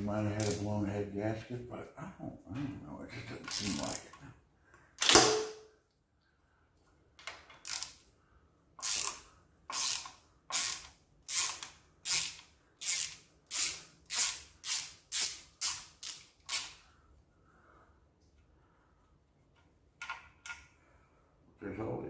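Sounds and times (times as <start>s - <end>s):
socket ratchet clicking: 7.6s - 8.0s, 8.8s - 16.8s.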